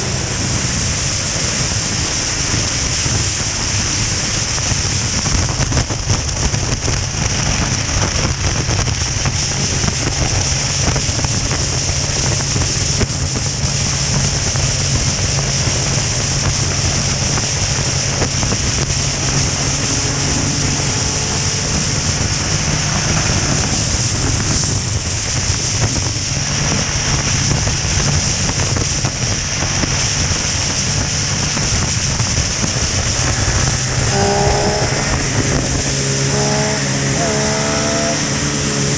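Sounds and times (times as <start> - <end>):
motorcycle engine drone: 0.0 - 38.9
road noise: 0.0 - 38.9
wind rushing over microphone: 0.0 - 38.9.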